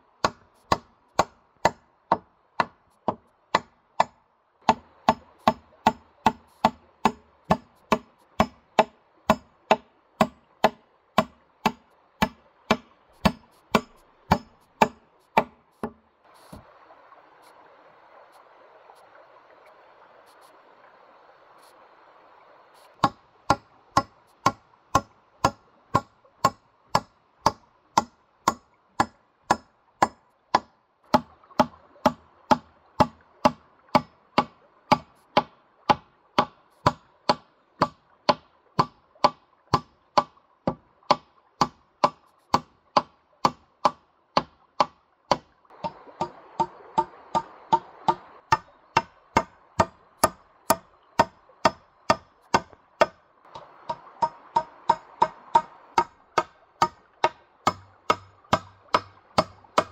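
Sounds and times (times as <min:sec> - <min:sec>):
running stream: 0:00.0 - 0:59.9
sharp chopping strikes: 0:00.2 - 0:16.0, 0:23.0 - 0:31.3.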